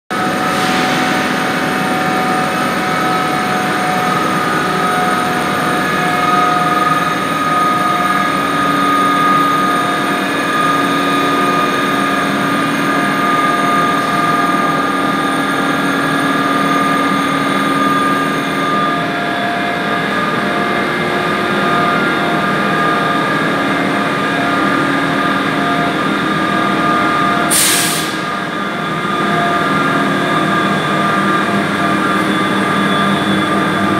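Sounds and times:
train rumble: 0.1s - 27.4s
electric locomotive whine: 0.1s - 33.9s.

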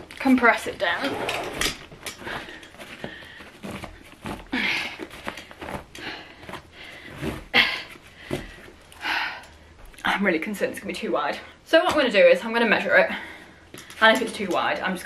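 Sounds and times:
fabric rustling: 0.0s - 8.9s.

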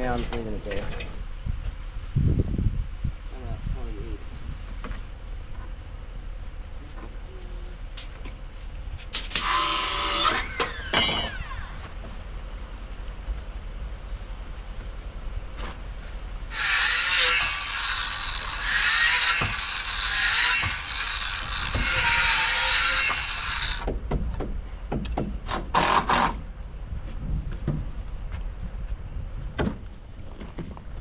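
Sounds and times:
power tool cutting wood: 9.3s - 11.8s, 16.5s - 23.9s.

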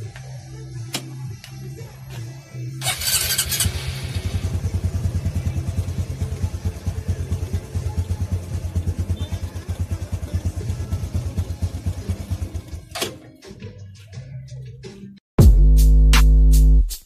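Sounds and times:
motorcycle engine idling: 2.8s - 13.0s.

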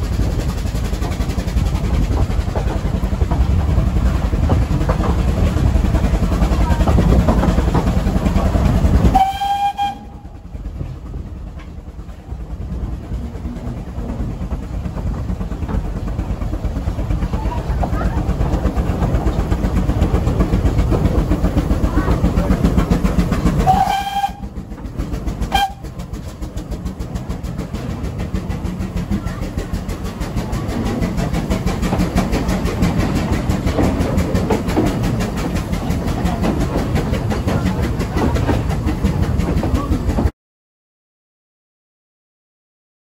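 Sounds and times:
train carriage rumble and clatter: 0.0s - 40.3s
steam whistle toots: 9.1s - 10.3s, 23.6s - 24.6s, 25.5s - 25.9s.

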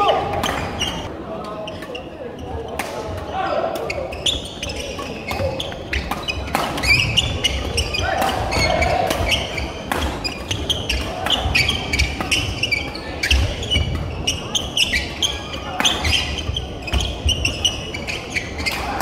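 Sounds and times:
shoes squeaking on wooden floor: 0.0s - 1.1s, 3.8s - 19.0s
racket striking shuttlecock: 6.0s - 12.5s.

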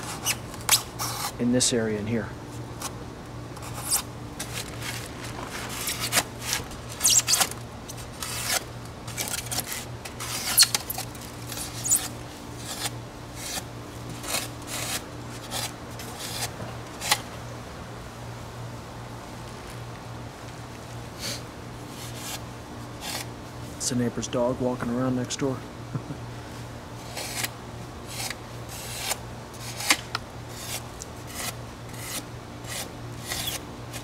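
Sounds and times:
knife cutting styrofoam: 0.0s - 1.4s, 3.6s - 17.2s, 27.0s - 34.0s.

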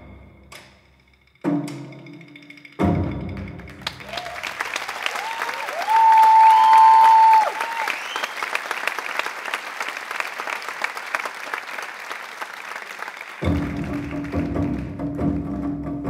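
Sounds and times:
music with low tone and percussion: 0.0s - 4.1s, 13.4s - 16.0s
audience applauding: 3.4s - 15.1s.

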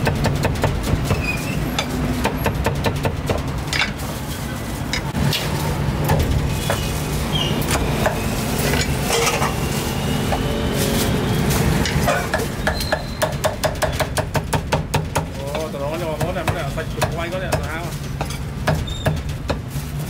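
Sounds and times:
low traffic hum: 0.0s - 20.0s
cooking utensils and dishes clinking: 6.6s - 11.0s, 11.6s - 13.2s, 17.7s - 19.7s.

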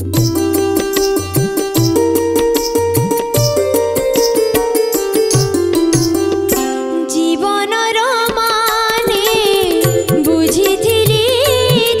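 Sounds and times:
woman singing into microphone: 6.8s - 12.0s.

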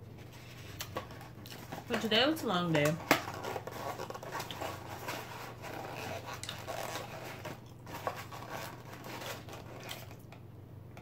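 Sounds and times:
paper wrapper rustling: 0.1s - 10.3s
close chewing: 3.6s - 10.3s.

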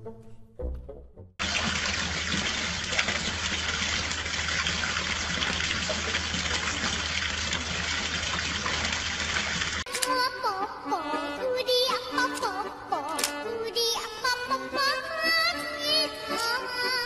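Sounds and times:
fountain water splashing: 1.4s - 9.9s.

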